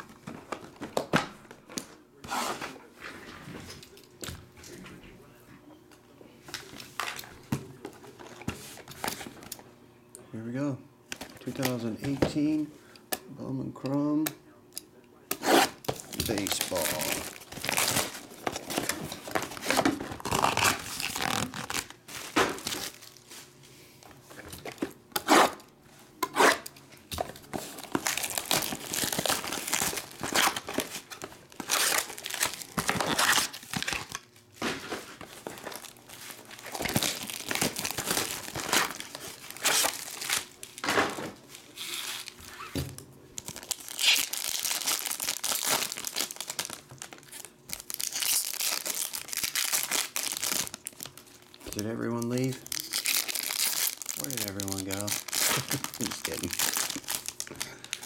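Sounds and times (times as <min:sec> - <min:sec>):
plastic wrap crinkling and tearing: 0:15.9 - 0:23.4, 0:27.3 - 0:34.4, 0:35.1 - 0:42.7, 0:43.4 - 0:58.0.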